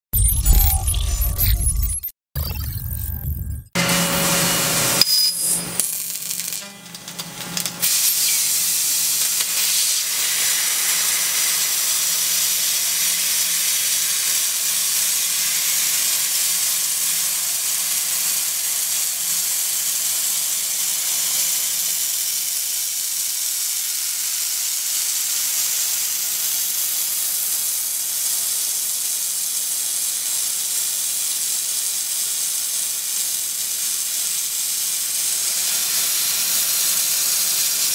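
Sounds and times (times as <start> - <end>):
laser cutter air jet hissing: 7.8 - 14.4, 34.0 - 37.9.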